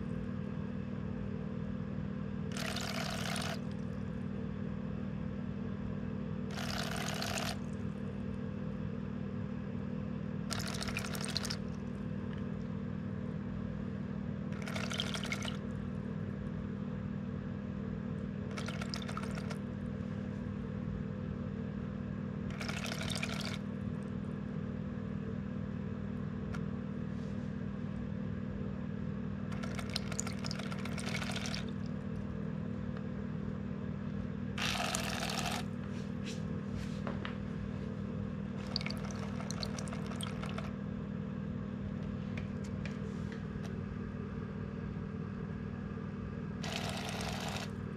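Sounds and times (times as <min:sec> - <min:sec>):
small motor humming: 0:02.5 - 0:03.7, 0:06.5 - 0:07.6, 0:34.6 - 0:35.7, 0:46.6 - 0:47.8.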